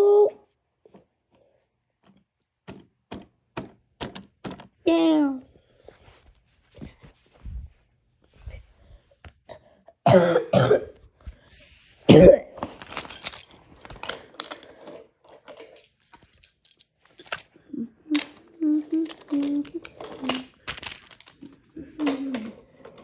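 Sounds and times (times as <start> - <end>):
person coughing: 10.0 - 11.0, 12.1 - 12.6
wooden toy train clattering: 12.6 - 23.0.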